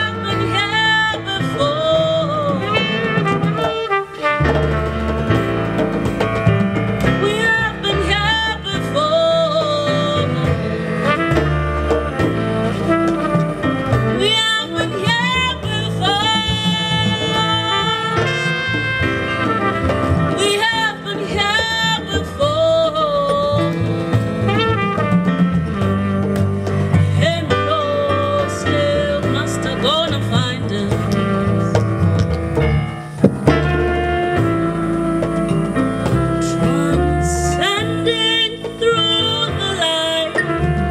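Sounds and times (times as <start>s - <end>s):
live jazz band: 0.0s - 40.9s
plucked double bass: 0.0s - 40.9s
trumpet melody: 0.0s - 40.9s
woman singing without words: 7.2s - 11.0s, 14.2s - 18.4s, 33.4s - 40.8s.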